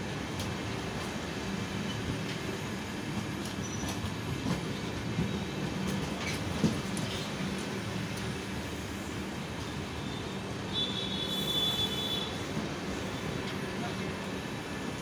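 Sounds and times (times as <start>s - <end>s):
train wheels rumbling on rails: 0.0s - 15.0s
clacks over rail joints: 3.1s - 8.4s.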